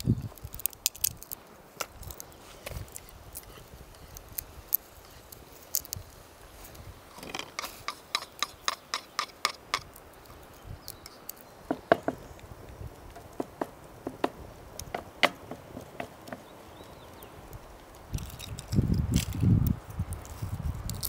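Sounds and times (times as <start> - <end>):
sharp clicks and knocks: 13.1 - 16.5.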